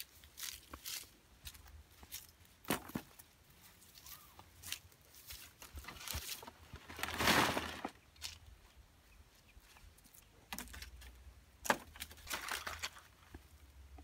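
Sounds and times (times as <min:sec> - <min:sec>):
leaves rustling: 0:00.0 - 0:08.5.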